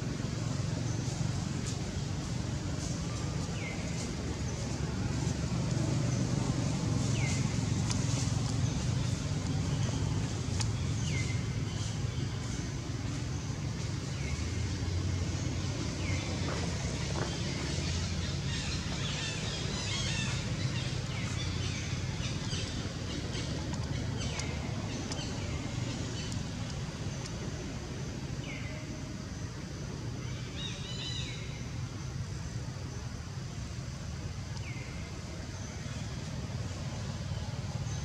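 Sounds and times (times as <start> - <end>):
low outdoor rumble: 0.0 - 38.0
birds chirping: 0.1 - 29.5.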